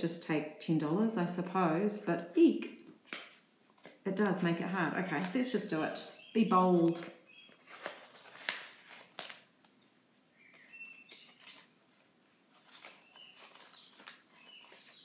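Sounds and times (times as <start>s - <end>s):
plastic banknotes and pouches rustling: 3.0s - 9.9s, 10.5s - 15.0s
faint bird chirps: 7.2s - 7.6s, 10.3s - 11.5s, 12.9s - 15.0s.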